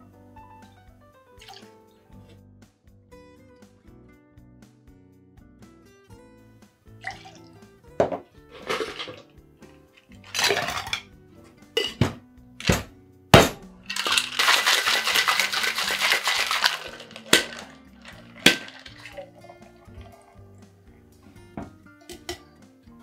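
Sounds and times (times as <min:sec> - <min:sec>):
background music: 0:00.0 - 0:23.0
ice clinking in metal shaker: 0:07.0 - 0:07.4, 0:08.1 - 0:09.3, 0:10.0 - 0:11.1, 0:13.8 - 0:20.4
ice rattling in shaken tins: 0:08.5 - 0:09.3, 0:10.0 - 0:11.1, 0:13.8 - 0:20.2.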